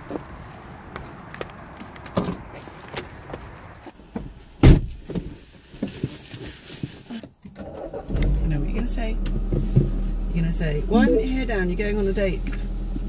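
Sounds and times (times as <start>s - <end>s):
car door thumping shut: 4.6s - 4.9s.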